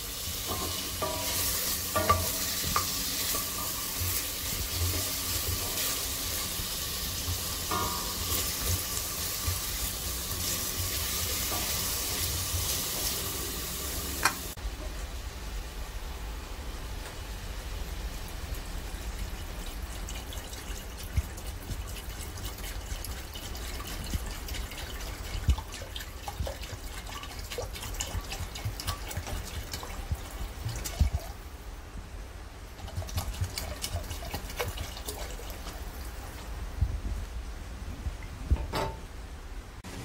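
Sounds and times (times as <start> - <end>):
liquid crackling in hot pot: 0.0 - 14.6, 18.2 - 31.6, 32.6 - 36.6
vinegar pouring and trickling: 18.8 - 31.4, 32.8 - 36.5.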